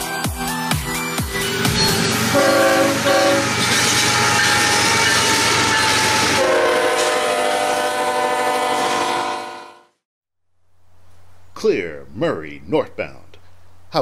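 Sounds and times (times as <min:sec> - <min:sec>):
train rumble and clatter: 0:01.4 - 0:07.2
locomotive air horn chord: 0:01.4 - 0:10.0.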